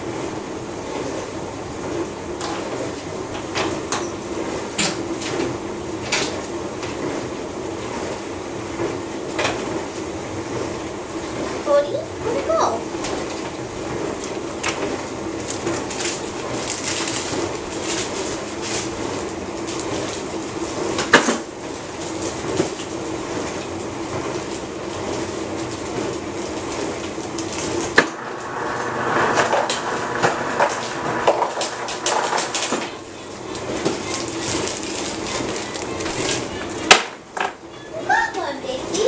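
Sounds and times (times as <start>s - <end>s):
ice rustling in plastic bag: 15.2s - 29.4s, 30.0s - 36.9s
kitchen clatter: 29.2s - 37.6s.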